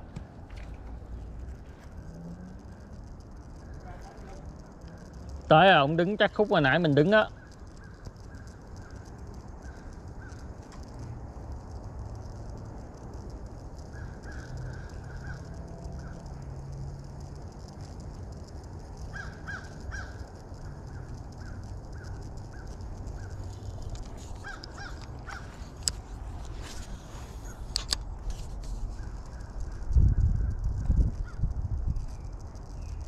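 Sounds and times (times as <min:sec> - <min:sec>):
outdoor background noise: 0:00.0 - 0:33.0
sharp clicks: 0:00.0 - 0:33.0
crows cawing: 0:07.1 - 0:10.6, 0:13.9 - 0:16.4, 0:19.0 - 0:25.7.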